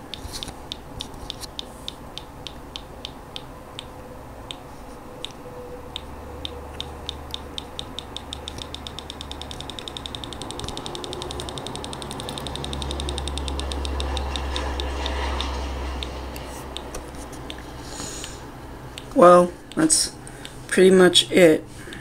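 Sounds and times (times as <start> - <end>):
speaker ticking: 0.0 - 4.6, 5.2 - 21.0.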